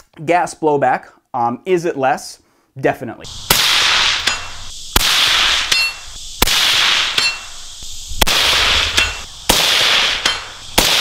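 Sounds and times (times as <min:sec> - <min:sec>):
suppressed rifle shots: 0:03.5 - 0:07.6, 0:08.2 - 0:11.0.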